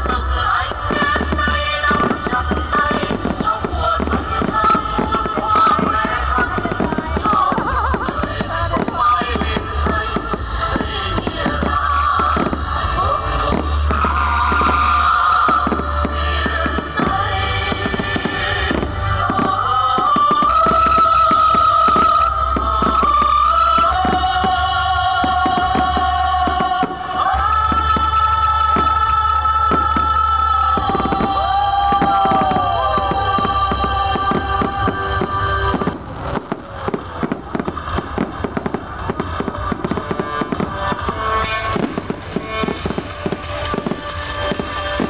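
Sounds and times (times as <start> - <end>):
fireworks bursting and crackling: 0.0 - 45.0
loud music with held notes: 0.0 - 45.0.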